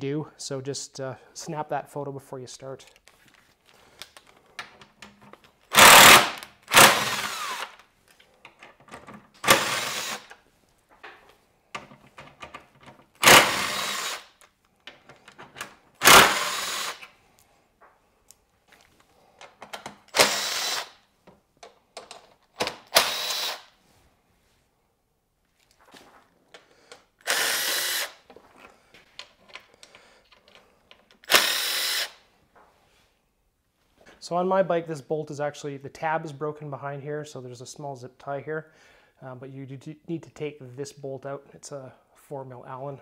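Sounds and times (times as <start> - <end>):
power driver spinning bolts: 5.7 - 7.7.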